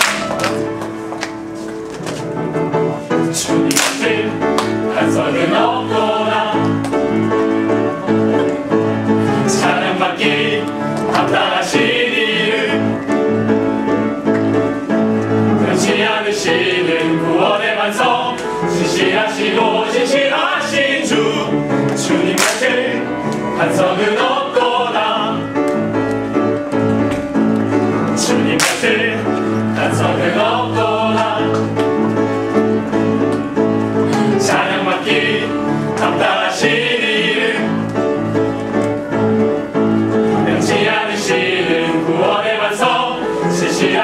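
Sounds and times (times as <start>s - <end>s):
instrumental accompaniment: 0.0s - 44.0s
mixed choir singing gospel: 3.3s - 26.5s, 27.2s - 44.0s.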